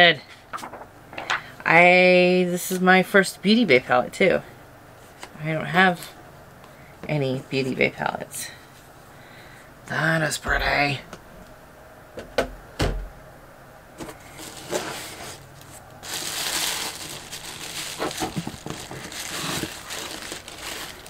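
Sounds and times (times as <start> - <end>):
packaging rustling: 0.5 - 1.5, 14.0 - 21.0.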